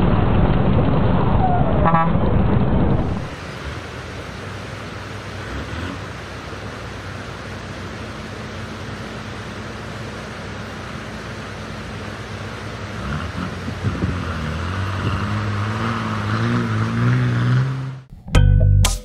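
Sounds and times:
rushing outdoor noise: 0:00.0 - 0:17.9
coach engine humming: 0:03.2 - 0:17.9.

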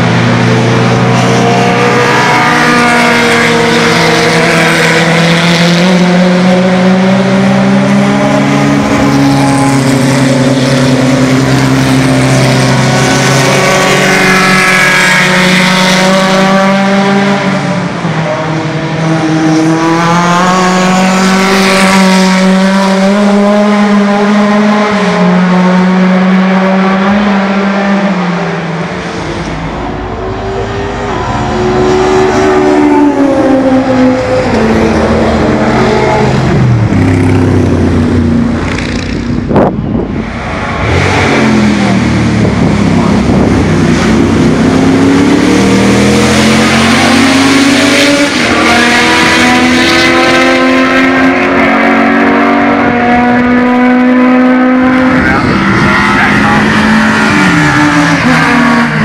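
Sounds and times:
racing car engines at high revs: 0:00.0 - 0:59.0.

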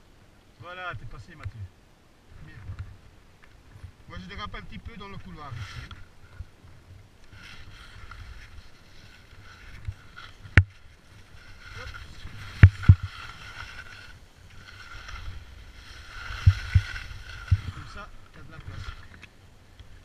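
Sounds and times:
skis scraping on snow: 0:04.9 - 0:20.0.

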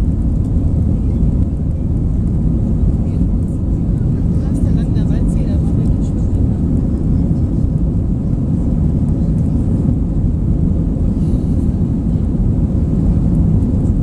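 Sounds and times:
jet engine rumble in cabin: 0:00.0 - 0:14.0
rushing airflow: 0:00.0 - 0:14.0.

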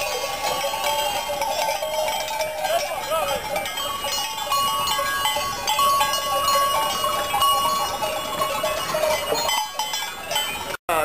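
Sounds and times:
sheep bells clanking: 0:00.0 - 0:11.0.

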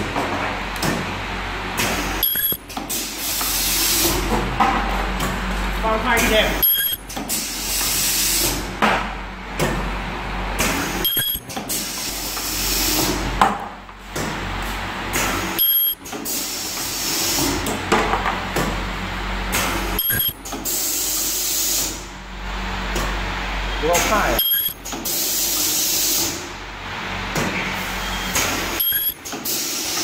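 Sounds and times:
welding machine hissing: 0:06.2 - 0:08.6, 0:23.9 - 0:26.4.

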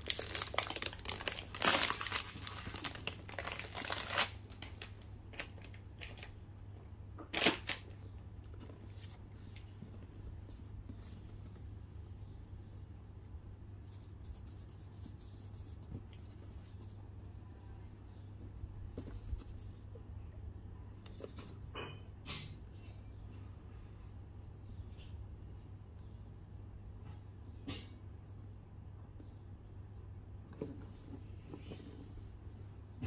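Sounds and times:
cellophane wrap crinkling: 0:00.0 - 0:06.3, 0:07.3 - 0:08.0
low steady hum: 0:00.0 - 0:33.0.

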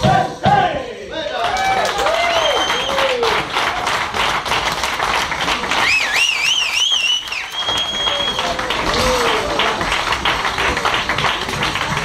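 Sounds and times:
rapid claps and taps: 0:03.3 - 0:05.8, 0:07.2 - 0:12.0.

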